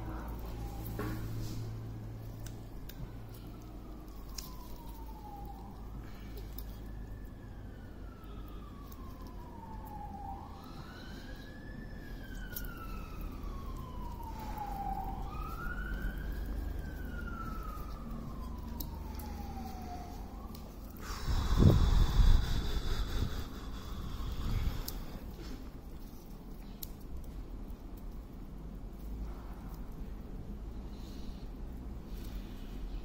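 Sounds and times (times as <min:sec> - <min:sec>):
siren wailing: 0:00.0 - 0:26.2.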